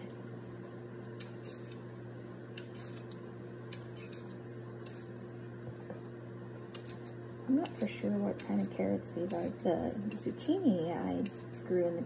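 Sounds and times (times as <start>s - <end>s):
steady low hum: 0.0s - 12.0s
peeler scraping a carrot: 1.2s - 1.8s, 2.6s - 5.1s, 6.7s - 11.8s.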